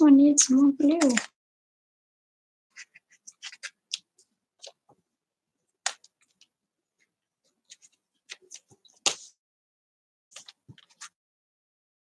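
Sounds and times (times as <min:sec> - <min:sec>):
hands handling paper: 0:02.7 - 0:05.0, 0:05.8 - 0:09.4, 0:10.3 - 0:11.2.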